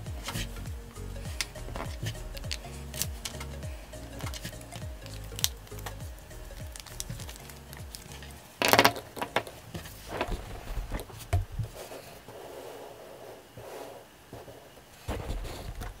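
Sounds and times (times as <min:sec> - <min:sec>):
pens tapping on desk: 0:04.2 - 0:06.0
paper rustle: 0:06.6 - 0:12.2.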